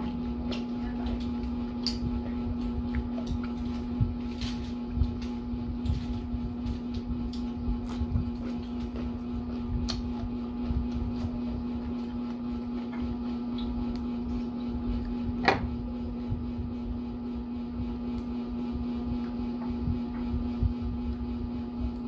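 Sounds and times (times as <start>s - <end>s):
low electrical hum: 0.0s - 22.0s
small clicks of food being eaten: 0.5s - 6.1s, 9.8s - 10.3s.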